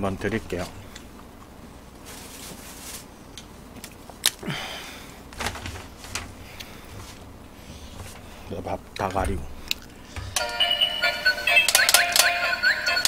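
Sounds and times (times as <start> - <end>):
paper sheet rustling: 2.0 - 3.2.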